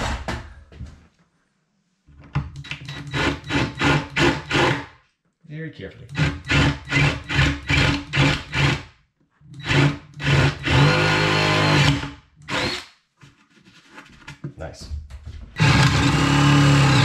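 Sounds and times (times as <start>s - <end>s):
cordless drill boring into wood: 2.7s - 4.8s, 6.1s - 8.8s, 9.6s - 12.9s, 15.6s - 17.0s.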